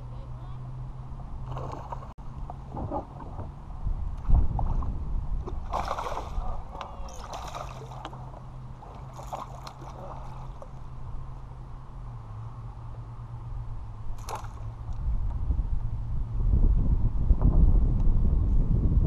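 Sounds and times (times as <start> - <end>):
fish splashing in water: 5.5 - 10.8, 14.2 - 14.7.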